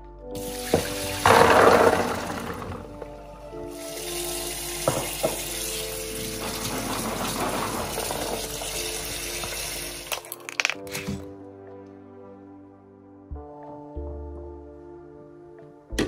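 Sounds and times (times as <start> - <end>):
water running from a tap: 0.4 - 2.6, 3.7 - 10.3.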